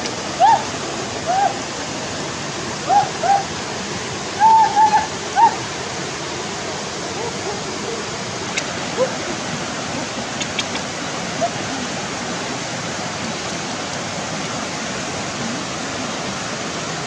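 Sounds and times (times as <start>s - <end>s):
river rushing over rocks: 0.0s - 17.0s
short arched high calls: 4.4s - 5.6s.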